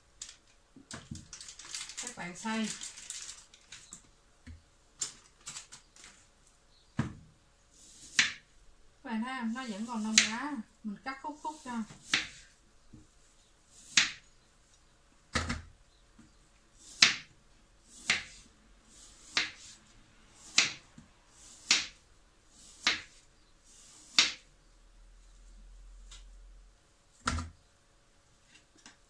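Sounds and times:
knife chopping on cutting board: 0:08.0 - 0:08.4, 0:11.9 - 0:12.4, 0:13.9 - 0:14.2, 0:16.8 - 0:17.3, 0:17.9 - 0:18.4, 0:19.2 - 0:19.7, 0:20.4 - 0:20.8, 0:21.6 - 0:22.0, 0:22.8 - 0:23.2, 0:24.0 - 0:24.4.

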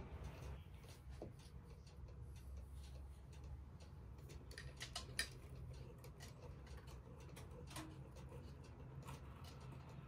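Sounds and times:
clock ticking: 0:00.0 - 0:10.0.

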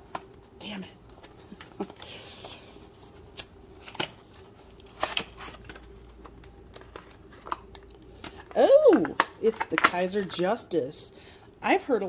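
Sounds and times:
packaging rustling: 0:01.1 - 0:08.5
packaging clicks and snaps: 0:04.8 - 0:10.3.

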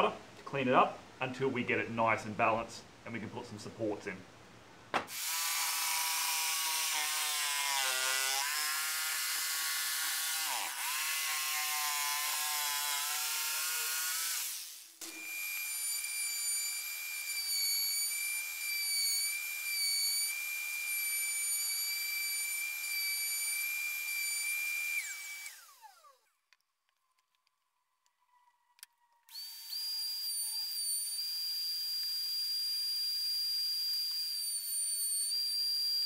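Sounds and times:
jigsaw cutting plywood: 0:05.1 - 0:17.8, 0:20.4 - 0:26.2
router whining: 0:05.1 - 0:26.4, 0:28.8 - 0:36.0.

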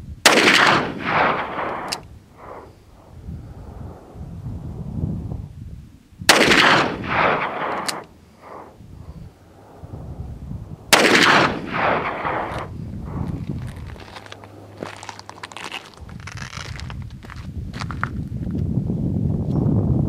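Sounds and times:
revolver shots with echo: 0:00.3 - 0:02.7, 0:06.3 - 0:08.8, 0:10.8 - 0:12.7.

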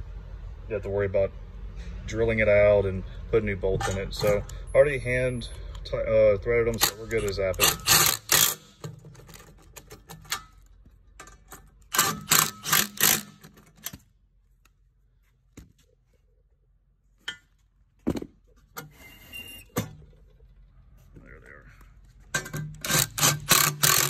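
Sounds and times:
impact driver rattling bursts: 0:06.8 - 0:10.5, 0:11.8 - 0:14.0, 0:22.4 - 0:24.0.

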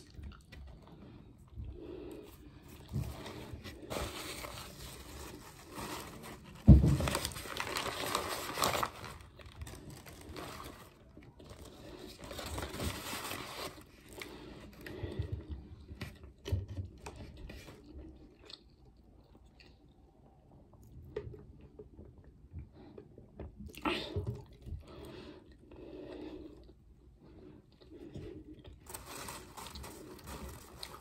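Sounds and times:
paper rustling and crinkling: 0:02.8 - 0:14.8, 0:28.8 - 0:31.0.

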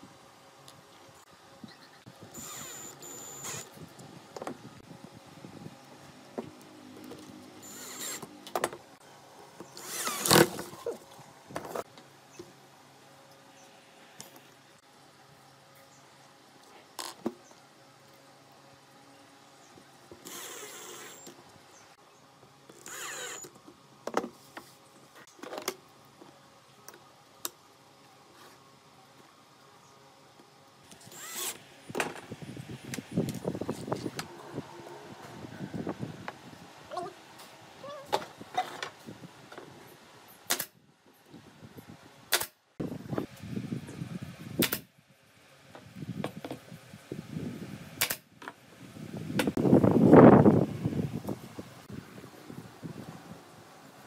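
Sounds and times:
cordless drill whirring: 0:02.3 - 0:03.7, 0:07.6 - 0:08.3, 0:09.8 - 0:10.5, 0:20.2 - 0:21.3, 0:22.8 - 0:23.5, 0:30.9 - 0:31.6
nail gun shots: 0:40.5 - 0:40.8, 0:42.3 - 0:42.6, 0:44.6 - 0:44.9, 0:48.0 - 0:48.3.

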